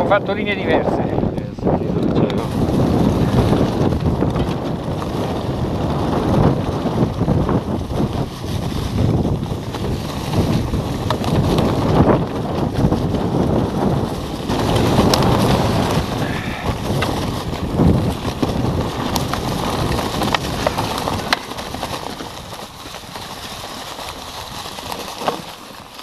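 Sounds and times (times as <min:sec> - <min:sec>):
tyres rumbling on dirt trail: 0:00.0 - 0:26.0
wind buffeting microphone: 0:00.0 - 0:26.0
bike knocks and rattles: 0:02.0 - 0:26.0.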